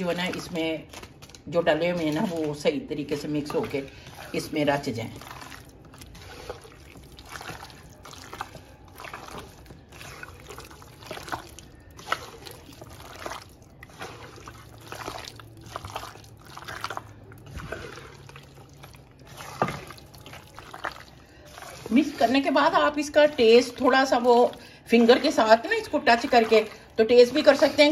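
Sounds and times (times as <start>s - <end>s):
wet squelches of marinating meat: 0.0s - 27.9s.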